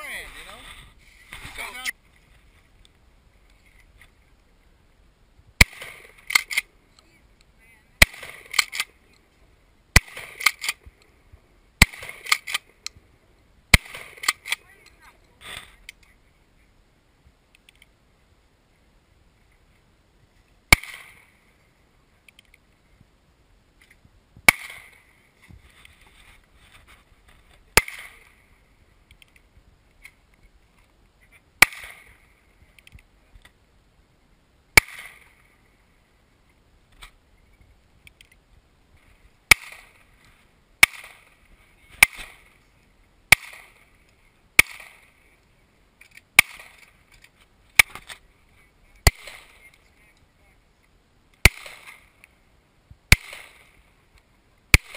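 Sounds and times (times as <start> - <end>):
handgun shots: 11.8 - 12.6, 40.8 - 41.3, 43.3 - 43.8, 44.6 - 45.0, 46.4 - 46.8, 51.4 - 52.0, 53.1 - 53.7.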